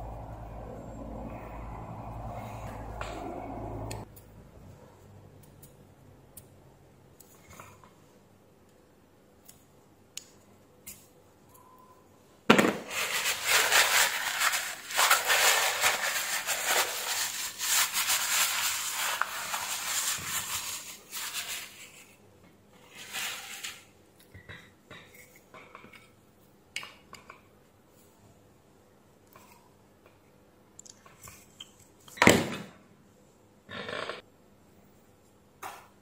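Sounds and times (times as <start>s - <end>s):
tissue paper crackling: 12.8s - 21.9s.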